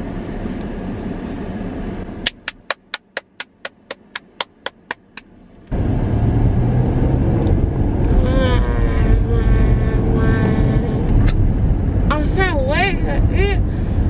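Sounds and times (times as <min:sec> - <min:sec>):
car cabin rumble: 0:02.1 - 0:06.1
sharp evenly spaced ticks: 0:02.3 - 0:05.2.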